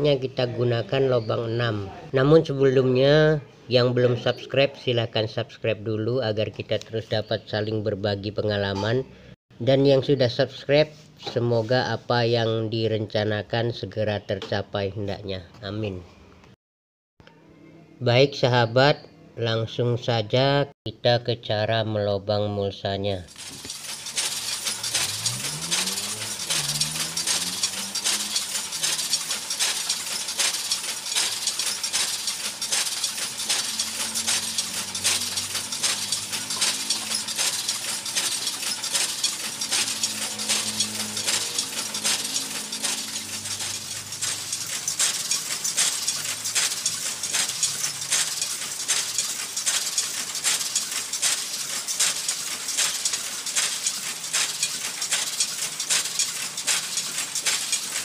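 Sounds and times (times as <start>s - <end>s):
machine clattering metallic clicks: 23.3s - 58.0s.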